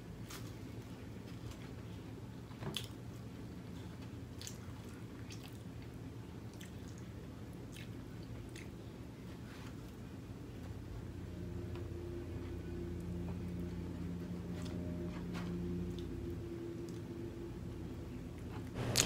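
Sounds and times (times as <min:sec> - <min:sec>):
low steady hum: 0:00.0 - 0:19.0
chewing food: 0:03.8 - 0:08.9.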